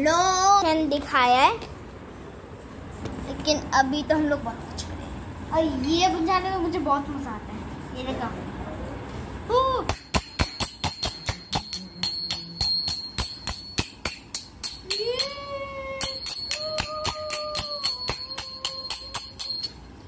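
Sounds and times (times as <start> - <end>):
hand cymbals clashing: 9.9 - 20.0.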